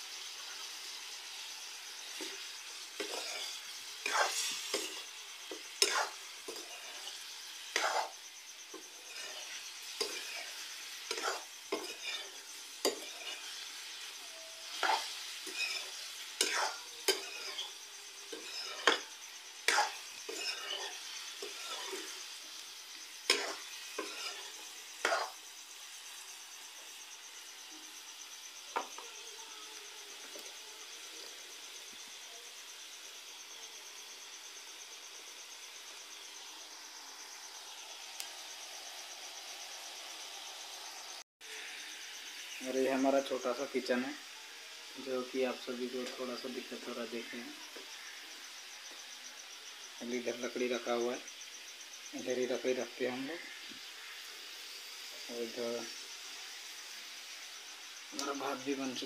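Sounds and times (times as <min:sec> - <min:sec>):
meat sizzling in a pan: 0:00.0 - 0:59.0
spatula scraping and knocking pan: 0:02.0 - 0:22.4, 0:23.2 - 0:25.4.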